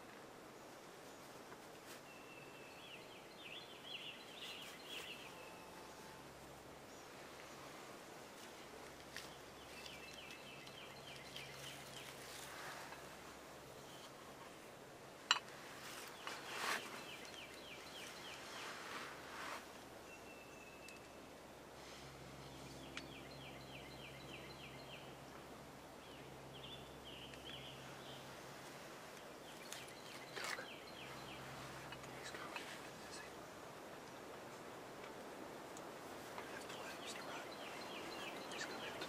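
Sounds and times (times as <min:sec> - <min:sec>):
songbird trills: 0:09.1 - 0:14.2, 0:15.3 - 0:19.0, 0:20.0 - 0:21.3, 0:22.4 - 0:25.4, 0:29.2 - 0:33.3, 0:36.4 - 0:39.0.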